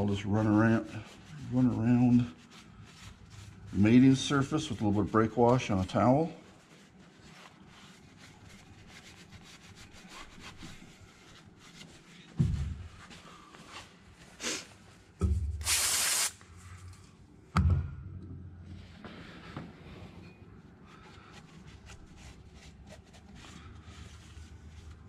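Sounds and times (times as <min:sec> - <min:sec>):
towel rubbing metal surface: 0:00.0 - 0:13.4
spray can hiss: 0:15.6 - 0:16.4.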